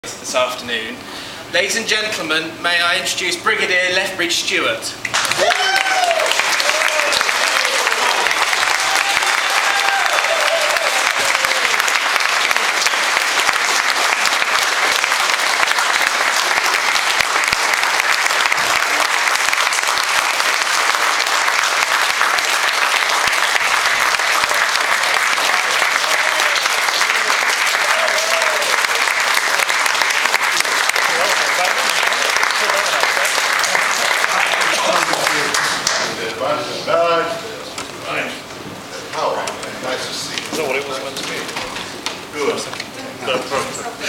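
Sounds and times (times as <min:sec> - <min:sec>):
large audience applauding: 0:05.1 - 0:36.3.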